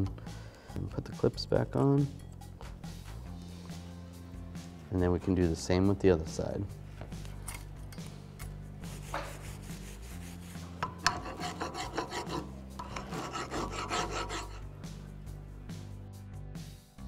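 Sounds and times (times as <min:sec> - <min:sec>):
metal file rasping on metal: 0:08.9 - 0:14.7.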